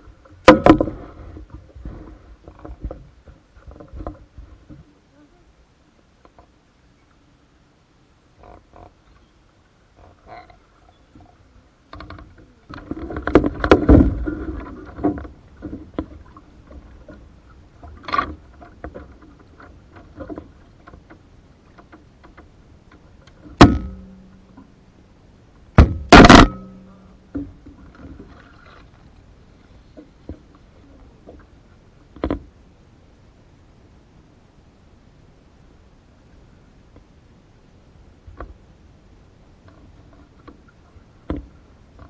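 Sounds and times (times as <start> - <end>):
knocks on canoe hull: 25.8 - 26.6
paddle splashing in water: 25.8 - 32.5.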